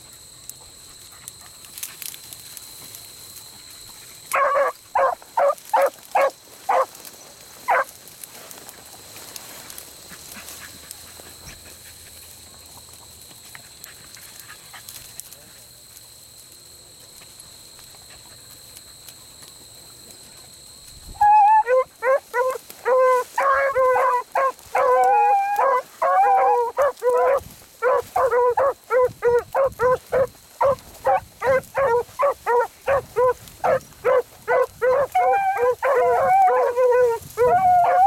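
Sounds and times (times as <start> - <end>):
dogs baying: 4.2 - 6.9, 21.2 - 38.0.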